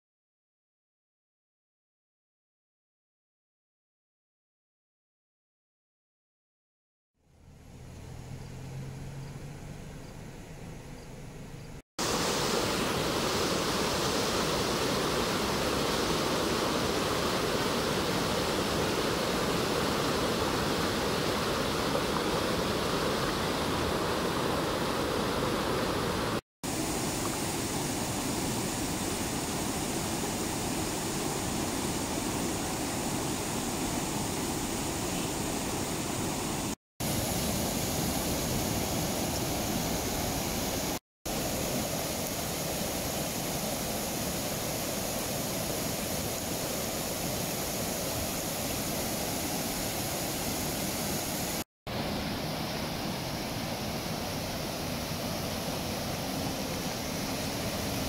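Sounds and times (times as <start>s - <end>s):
water rushing over rocks: 12.0s - 58.0s.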